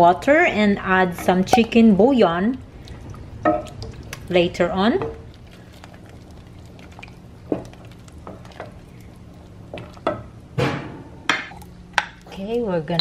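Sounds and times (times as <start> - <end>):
wooden spoon stirring soup: 0.0 - 10.6
steady low hum: 0.0 - 13.0.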